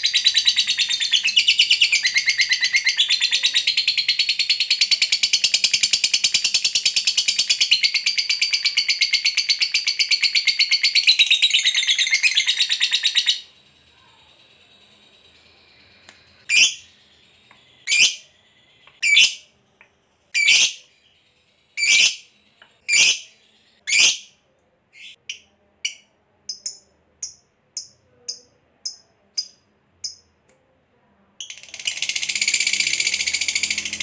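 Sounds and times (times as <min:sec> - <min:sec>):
bird chirps: 0:00.0 - 0:30.3, 0:31.4 - 0:34.0.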